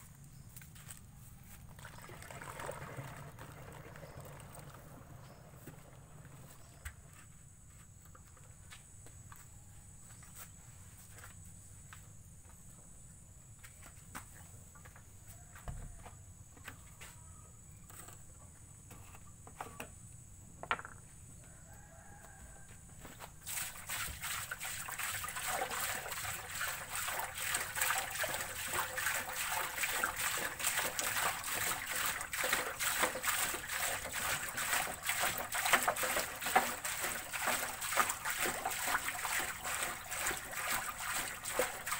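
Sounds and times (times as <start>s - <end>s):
liquid pouring into a wok: 1.8s - 6.4s, 23.5s - 41.9s.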